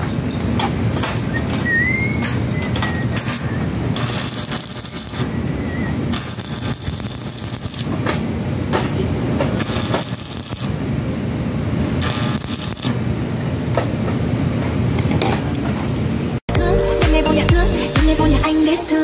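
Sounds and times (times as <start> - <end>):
steady low hum: 0.0 - 16.4
welding arc crackling: 2.0 - 8.0, 9.6 - 13.2.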